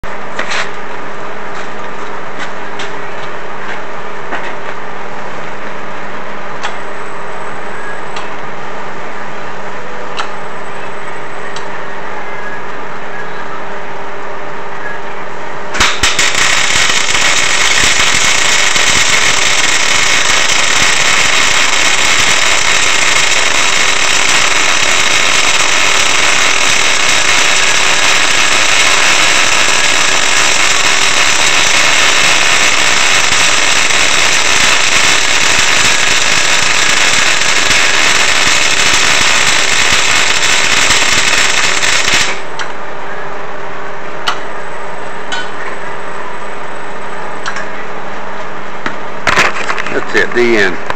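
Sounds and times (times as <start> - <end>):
welding arc crackling: 15.8 - 42.7.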